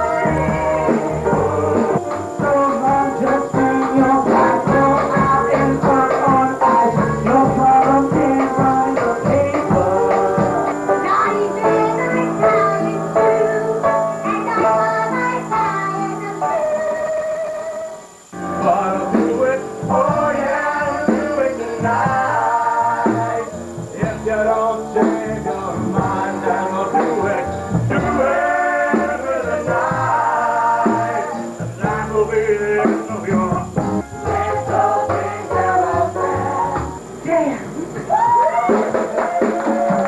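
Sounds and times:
man singing: 0.0 - 12.0, 18.6 - 33.8
woman singing: 0.0 - 18.0
instrumental accompaniment: 0.0 - 40.0.

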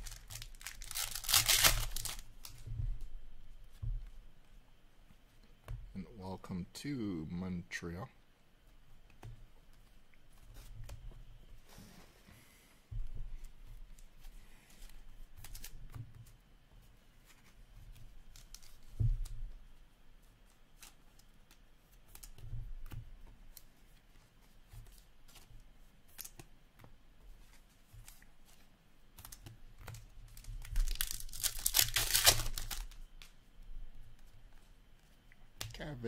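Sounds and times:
wrapper tearing open: 0.0 - 2.5, 30.3 - 33.0.

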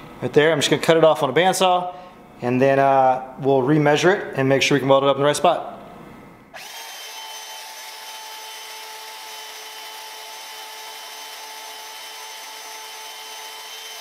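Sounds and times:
band saw cutting steel: 6.6 - 14.0.

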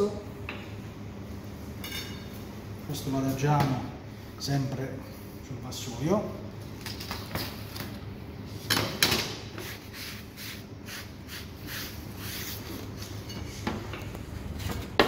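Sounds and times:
steady low hum: 0.0 - 15.0
cutting board being wiped: 9.6 - 12.8.

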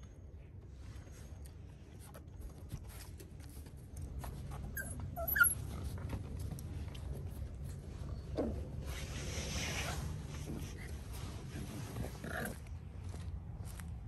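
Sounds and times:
paws scuffling on wooden boards: 2.6 - 14.0
puppies whimpering: 4.7 - 5.8.

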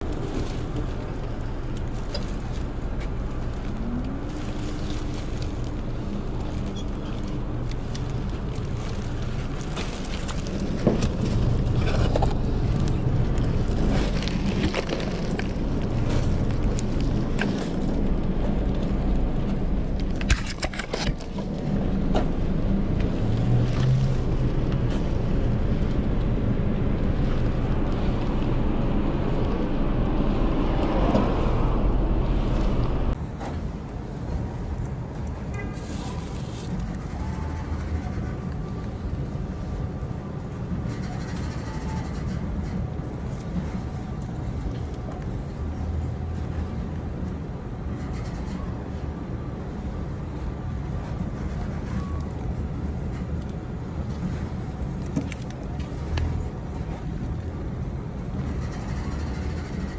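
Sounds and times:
clicks and crackles: 0.0 - 22.3
low rumble of street noise: 0.0 - 59.9.

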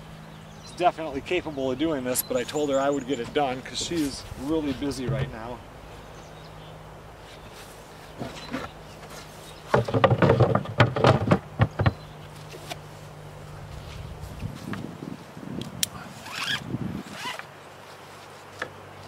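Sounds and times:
low steady hum: 0.0 - 17.0
wooden knocks and clatter: 5.0 - 5.4, 9.7 - 12.0.

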